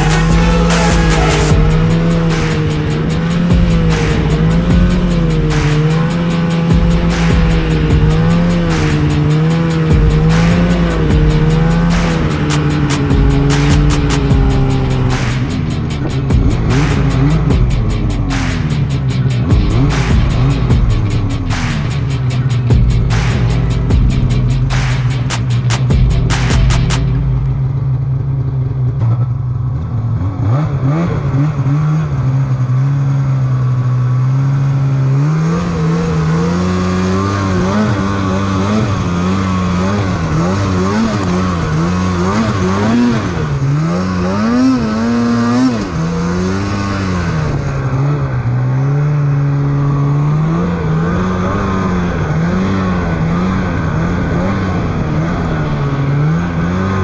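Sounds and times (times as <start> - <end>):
snowmobile engine revving: 0.0 - 57.0.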